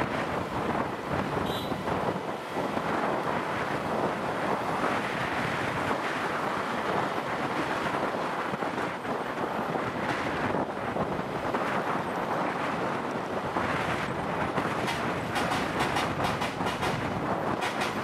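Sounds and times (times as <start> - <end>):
road noise: 0.0 - 18.0
wind buffeting microphone: 0.0 - 18.0.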